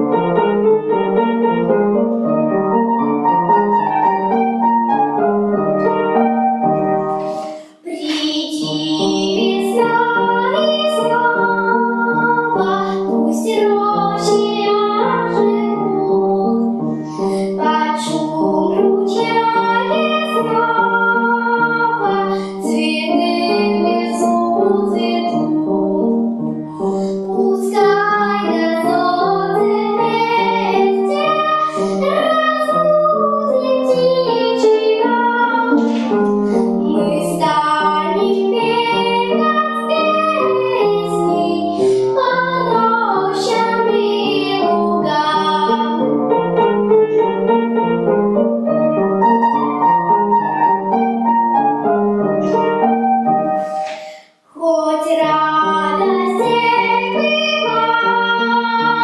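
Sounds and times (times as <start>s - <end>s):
upright piano accompaniment: 0.0s - 59.0s
girl singing: 7.2s - 48.0s, 53.8s - 59.0s.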